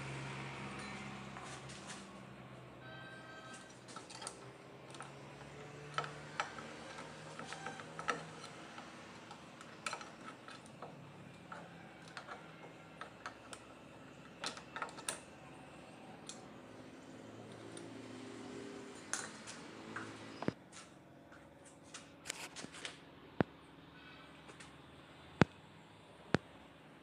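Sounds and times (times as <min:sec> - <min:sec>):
metallic clicks and clinks: 0:03.5 - 0:16.4.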